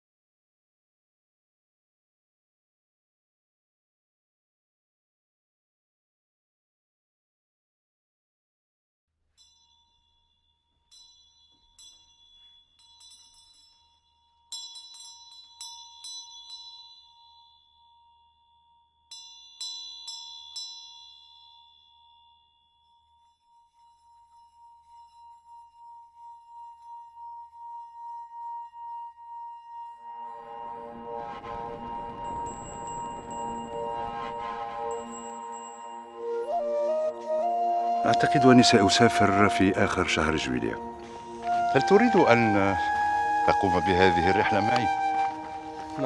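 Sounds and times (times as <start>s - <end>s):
struck bell-like chimes: 9.3s - 37.2s
pulsing swell: 30.3s - 36.9s.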